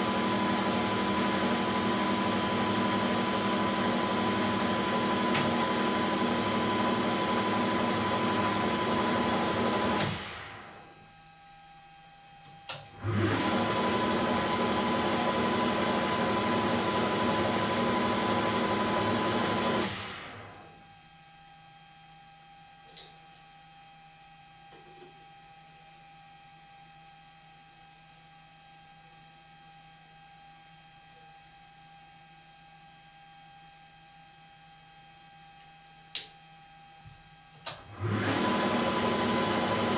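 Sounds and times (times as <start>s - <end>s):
faint hum: 10.3s - 12.9s, 20.4s - 37.8s
switch click: 36.1s - 36.4s.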